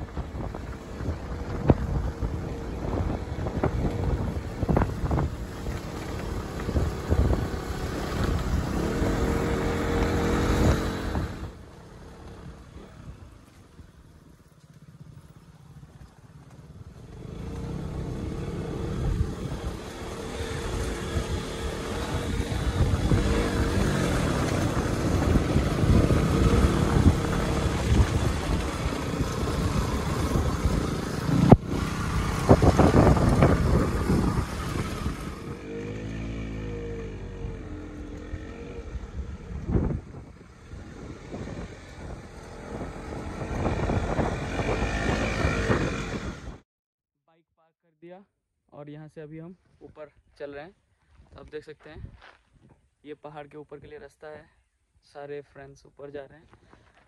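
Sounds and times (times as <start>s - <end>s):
wind buffeting microphone: 0.0s - 14.1s, 15.9s - 46.6s
motorcycle engine running: 0.0s - 46.6s.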